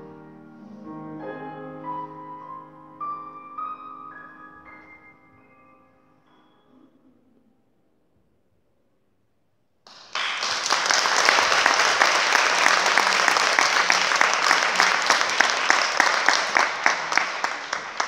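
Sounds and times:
audience applause: 0:09.9 - 0:18.0.

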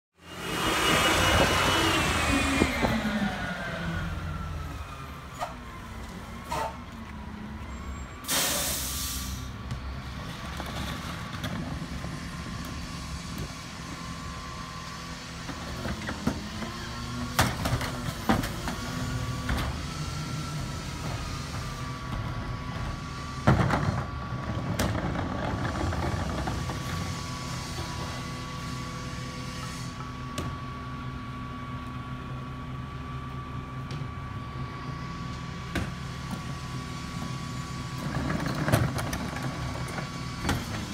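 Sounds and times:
garbage truck engine: 0:00.2 - 0:40.9
air brakes hissing: 0:06.4 - 0:06.8, 0:07.8 - 0:09.6.

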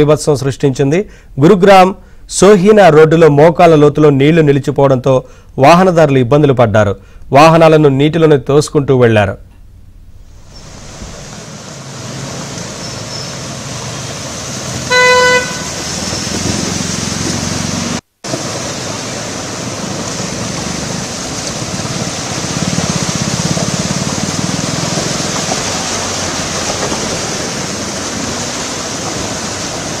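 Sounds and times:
traffic on flooded roads: 0:10.4 - 0:30.0
car horn: 0:14.8 - 0:15.9.

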